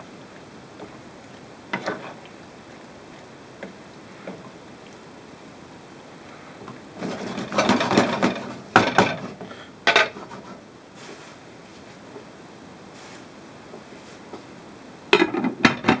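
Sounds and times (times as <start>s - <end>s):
wooden spatula scraping frying pan: 1.7s - 2.2s, 6.9s - 12.0s
sharp knocks: 7.6s - 9.2s.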